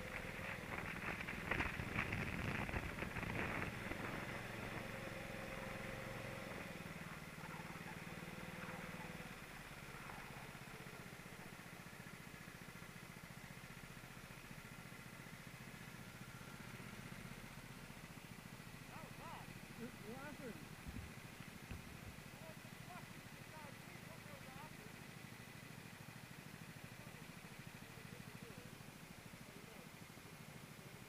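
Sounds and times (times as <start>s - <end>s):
rough crackly buffeting: 0.0s - 12.0s, 18.9s - 23.0s
go-kart engine running: 0.0s - 31.0s.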